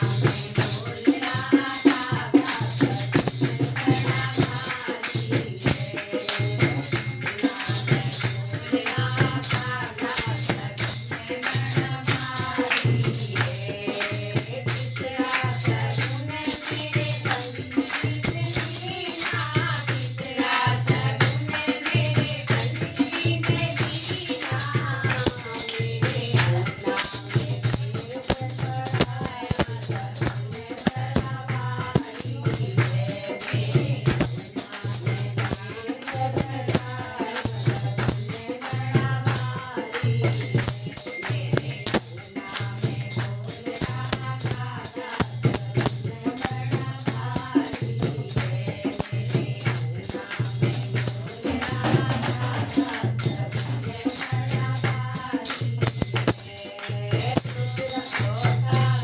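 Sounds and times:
hand drum beat: 0.0 - 59.0
women singing folk song: 0.0 - 59.0.

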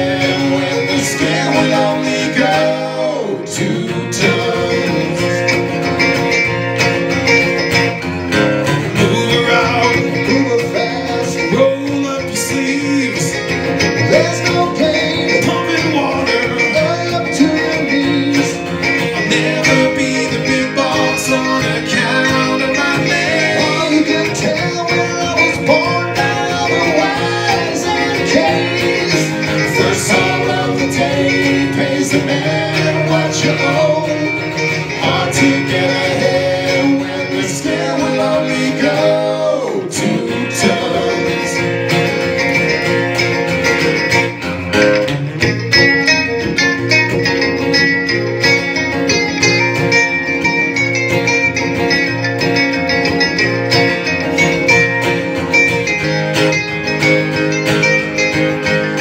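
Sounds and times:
person singing: 0.0 - 6.0, 8.8 - 42.2
acoustic guitars strummed: 0.0 - 59.0.

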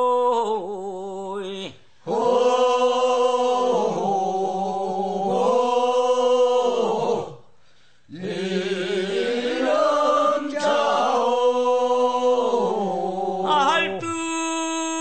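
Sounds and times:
funeral chant with held notes: 0.0 - 7.5, 8.1 - 15.0.

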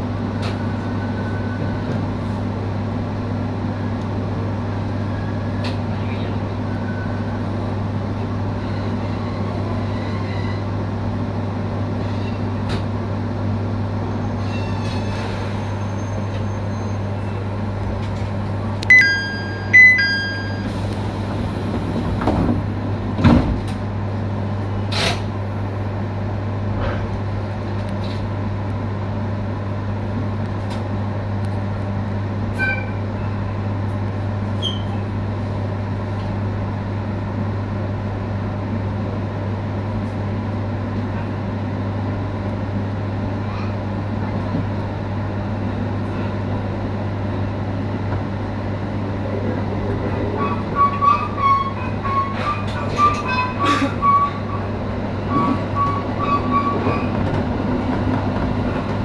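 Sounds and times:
train interior hum: 0.0 - 59.0
short electronic beeps: 18.9 - 20.7.

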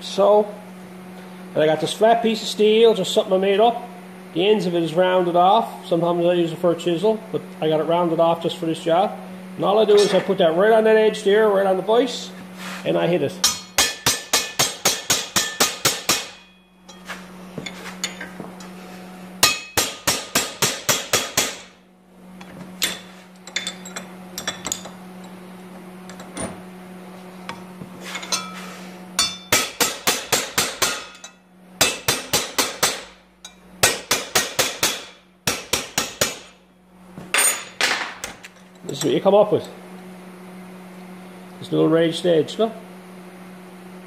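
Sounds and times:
hammer striking steel bar: 13.4 - 17.0, 19.4 - 21.7, 29.2 - 36.6.

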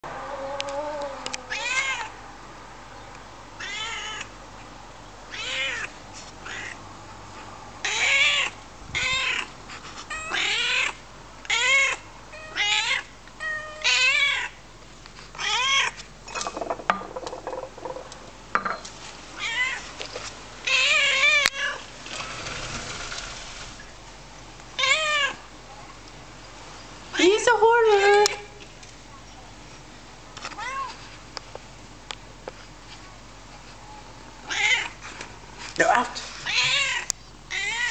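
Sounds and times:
cat meowing: 0.3 - 2.1, 5.3 - 6.8, 7.8 - 9.5, 10.1 - 14.5, 19.4 - 19.8, 30.6 - 31.0, 34.5 - 35.0, 36.4 - 37.9.

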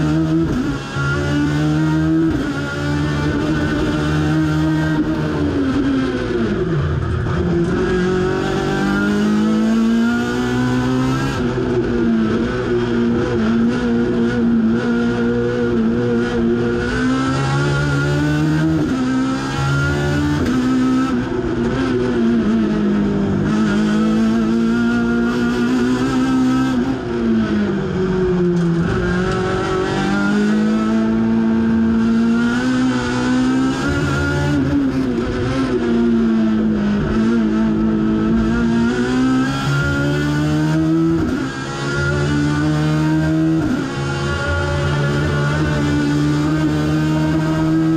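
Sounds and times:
race car engine revving: 0.0 - 47.9.

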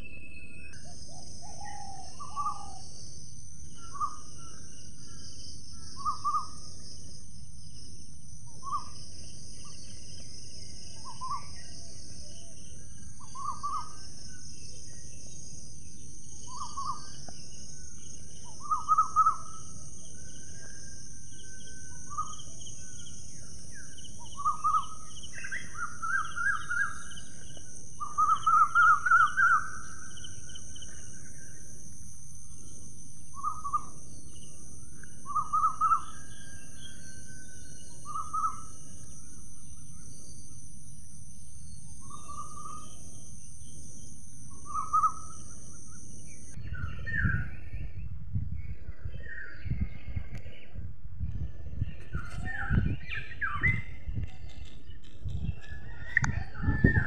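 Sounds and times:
bird trilled calls: 0.0 - 2.9, 3.8 - 5.2, 5.9 - 6.6, 8.5 - 9.0, 13.2 - 14.2, 18.4 - 20.7, 23.7 - 31.3, 33.3 - 34.0, 35.2 - 37.3, 37.9 - 38.8, 44.5 - 47.4
high-pitched insect drone: 0.0 - 47.7.

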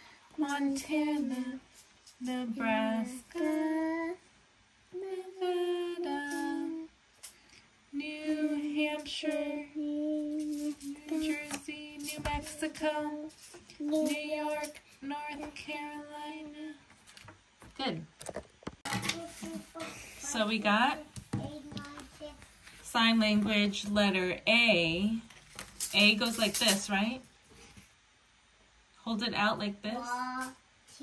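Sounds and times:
woman and child singing: 0.4 - 4.3, 4.9 - 7.0, 7.9 - 16.8.

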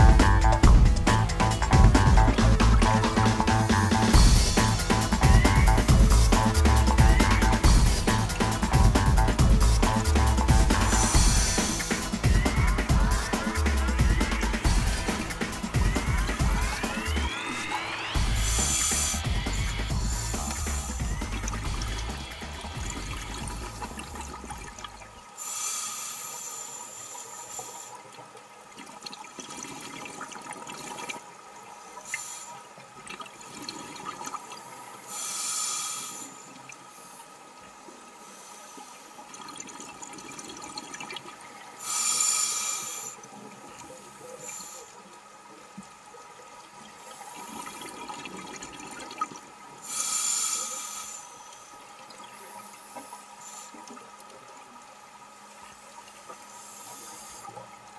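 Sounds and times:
diver breathing through regulator: 0.0 - 24.3, 25.4 - 28.1, 35.0 - 37.4, 41.8 - 43.3, 49.8 - 51.8, 56.4 - 57.7
exhaled bubbles rushing: 0.0 - 25.3, 28.7 - 31.5, 39.3 - 41.8, 46.8 - 49.7
low underwater background: 0.0 - 57.9.

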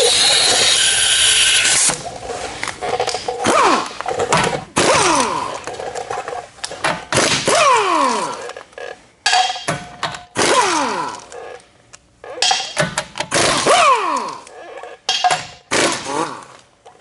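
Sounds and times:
pneumatic impact wrench bursts: 0.0 - 2.0, 4.8 - 5.5, 10.3 - 11.2, 15.7 - 16.5.

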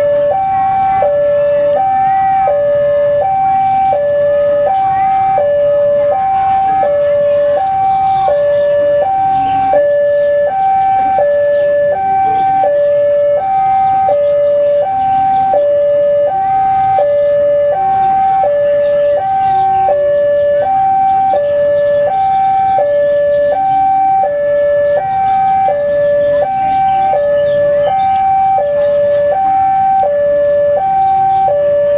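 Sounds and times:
level crossing alarm two-tone: 0.0 - 31.9.

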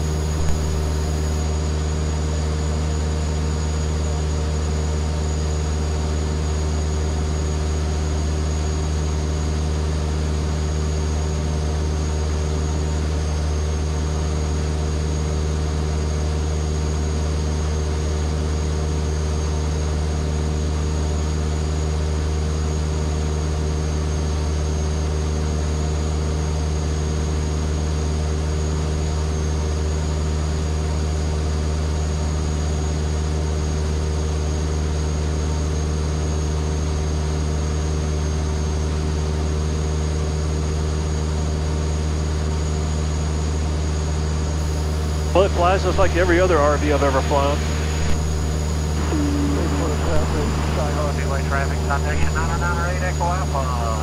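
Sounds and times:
thin high whine: 0.0 - 1.5, 44.6 - 54.0
aircraft engine and propeller drone: 0.0 - 23.8, 38.8 - 54.0.

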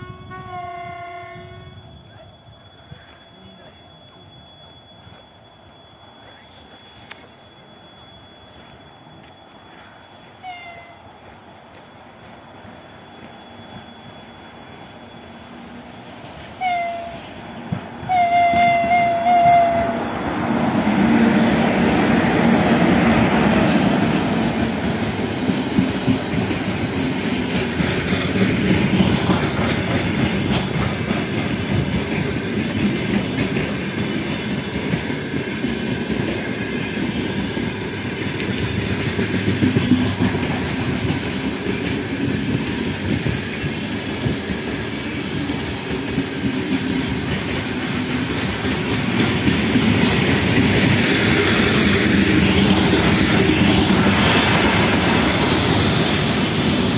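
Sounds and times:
locomotive horn blasts: 0.0 - 1.9, 16.6 - 17.4, 18.1 - 20.2
freight train wagons rumbling: 0.0 - 56.9
wheels clattering over rail joints: 24.4 - 56.9.

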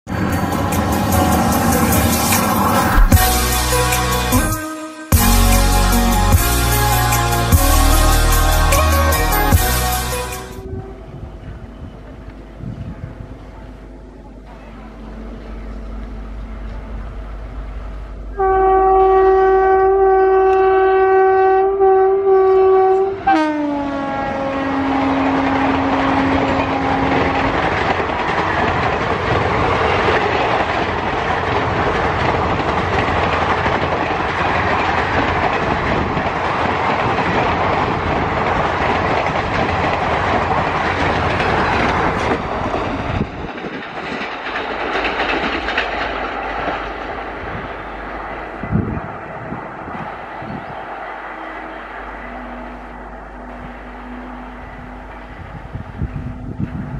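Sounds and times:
locomotive horn: 0.8 - 11.6, 18.2 - 27.6, 50.4 - 56.8
train wheels clattering on rails: 24.4 - 52.2.

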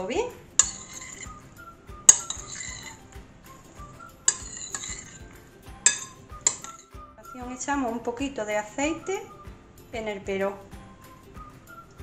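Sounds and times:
spoon scraping and clinking in bowl: 0.5 - 1.5, 2.1 - 6.9.

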